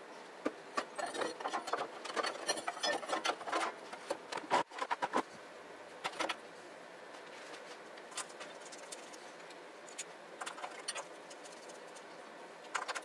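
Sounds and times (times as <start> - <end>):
metallic clicks and scrapes: 0.8 - 5.3.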